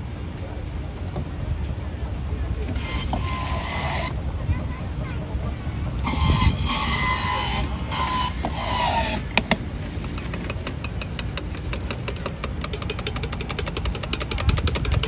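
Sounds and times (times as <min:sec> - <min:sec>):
juicer motor rumble: 0:00.0 - 0:15.0
fast rattling ticking: 0:09.3 - 0:15.0.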